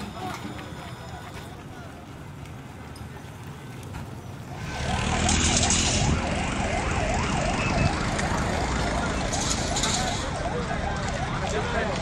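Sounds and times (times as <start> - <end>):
siren in fast yelp: 4.5 - 12.0.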